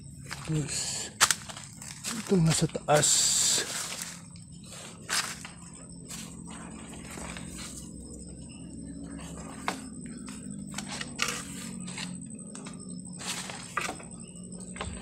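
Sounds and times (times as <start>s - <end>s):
steady low hum: 0.0s - 15.0s
footsteps through leaf litter: 0.3s - 4.2s
sharp crunches and snaps: 1.2s - 2.6s.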